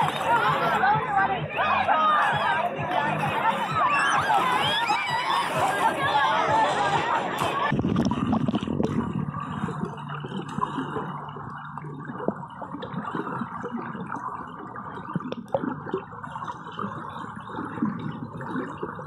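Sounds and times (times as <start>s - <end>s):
muffled underwater rush: 0.0s - 19.0s
small underwater clicks and pops: 9.8s - 16.1s.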